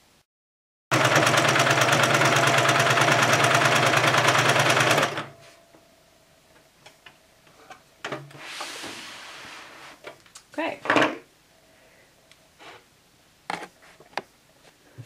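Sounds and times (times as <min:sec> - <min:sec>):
sewing machine stitching: 0:00.9 - 0:05.4.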